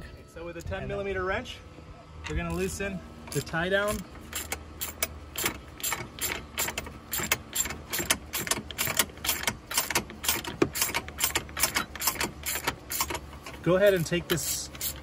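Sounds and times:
ratcheting wrench clicking: 0:03.3 - 0:15.0.

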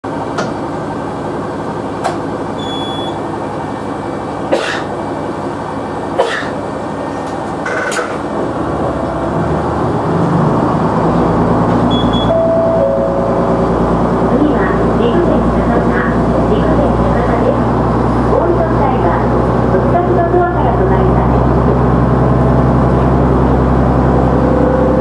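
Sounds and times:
diesel railcar engine: 0:00.0 - 0:25.0
short high beeps: 0:02.6 - 0:03.2, 0:11.9 - 0:13.4.

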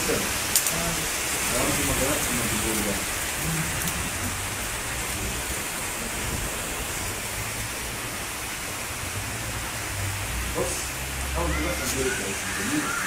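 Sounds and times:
heavy rain falling: 0:00.0 - 0:13.0.

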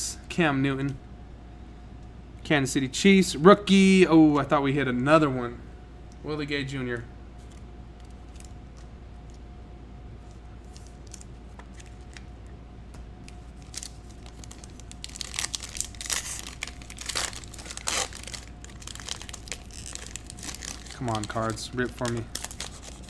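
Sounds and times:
foil wrapper crinkling: 0:13.3 - 0:23.0.

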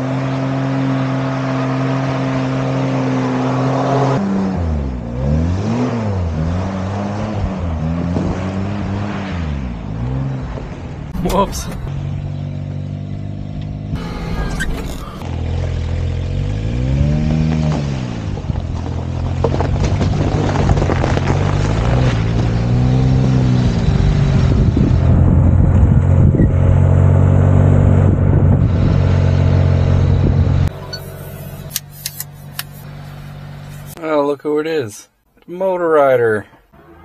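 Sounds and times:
truck engine revving: 0:11.1 - 0:19.1, 0:20.0 - 0:34.0.

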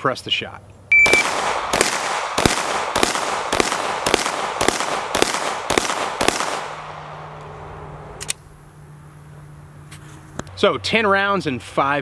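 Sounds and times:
handgun shots: 0:01.1 - 0:06.8.

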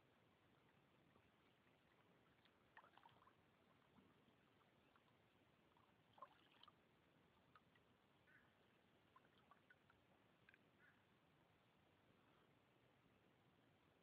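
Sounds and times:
paddle in water: 0:00.0 - 0:14.0
water drips and splashes: 0:00.5 - 0:10.7.

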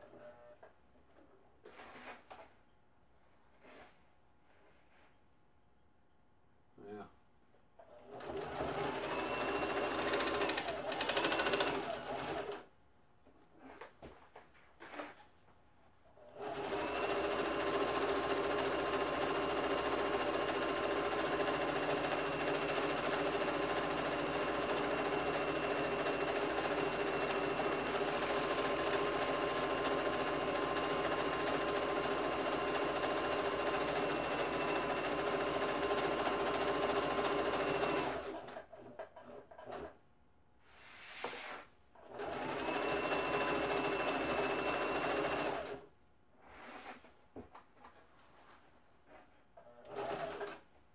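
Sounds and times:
sewing machine stitching: 0:07.8 - 0:12.7, 0:16.2 - 0:40.0, 0:42.0 - 0:45.9, 0:49.6 - 0:50.7.

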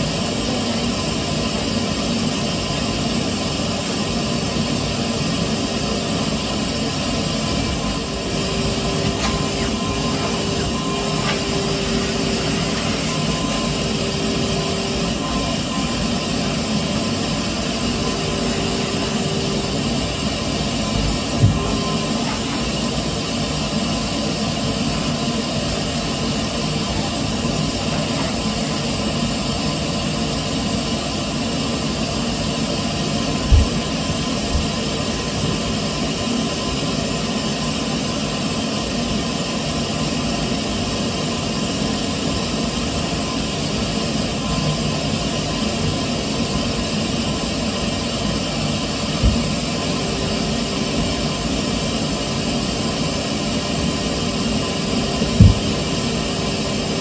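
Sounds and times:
vacuum cleaner running: 0:00.0 - 0:57.0
dull knocks: 0:33.5 - 0:33.8, 0:55.4 - 0:55.8.

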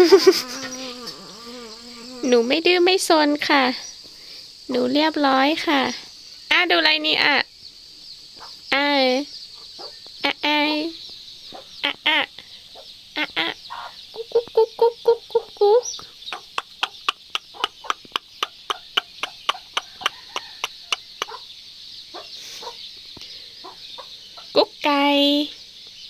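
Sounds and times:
chickens clucking: 0:07.9 - 0:08.7, 0:09.5 - 0:10.2, 0:11.1 - 0:24.7.

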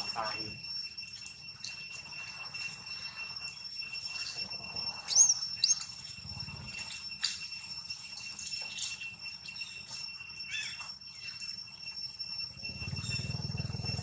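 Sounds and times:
steady high-pitched whine: 0:00.0 - 0:14.0
monkey squeaks: 0:05.1 - 0:06.0.

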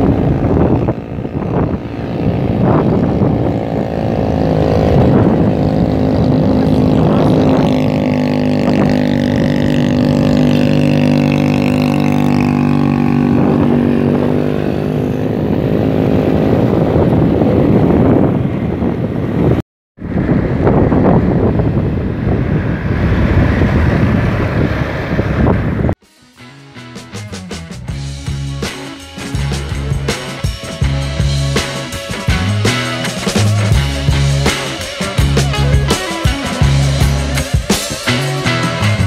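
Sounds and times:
motorcycle engine under load: 0:00.0 - 0:19.4.

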